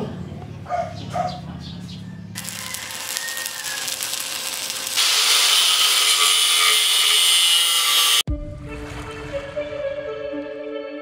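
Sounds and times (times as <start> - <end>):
angle grinder cutting metal: 2.4 - 8.3.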